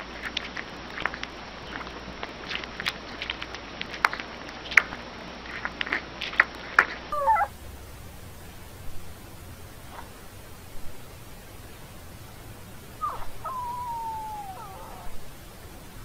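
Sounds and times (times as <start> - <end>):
puppy suckling wet clicks: 0.0 - 7.5
faint steady hiss: 0.0 - 16.0
puppy squeaking: 7.1 - 7.6, 13.0 - 15.3.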